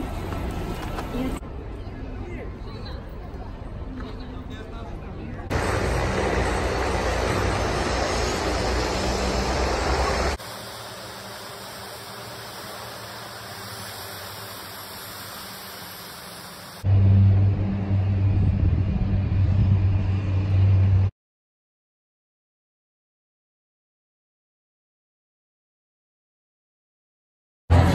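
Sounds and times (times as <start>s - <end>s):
floatplane engine running: 5.5s - 21.1s
loud steady low hum: 5.5s - 21.1s.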